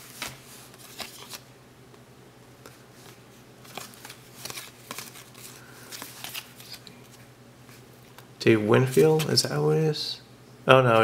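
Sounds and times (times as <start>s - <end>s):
cards being flipped: 0.0s - 1.5s, 2.6s - 8.3s.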